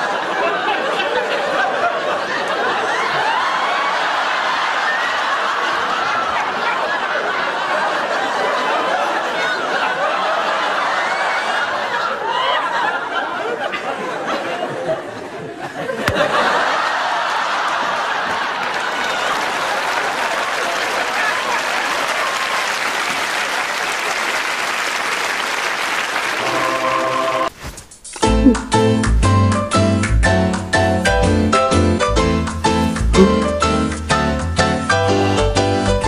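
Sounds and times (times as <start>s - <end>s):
studio audience laughing: 0.0s - 22.0s.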